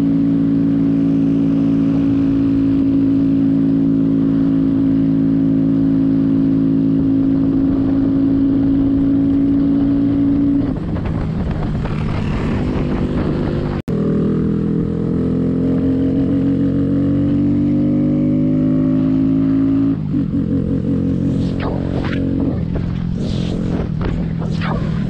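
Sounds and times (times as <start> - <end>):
small motorcycle engine running: 11.6 - 14.4.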